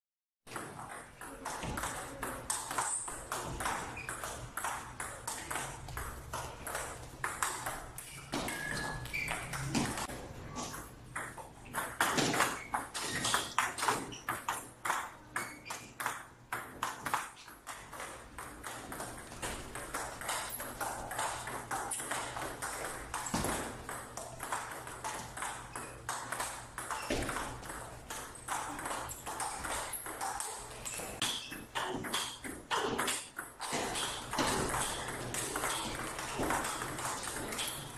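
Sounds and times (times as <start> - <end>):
ping pong ball clicking: 0.5 - 10.1, 11.2 - 37.9.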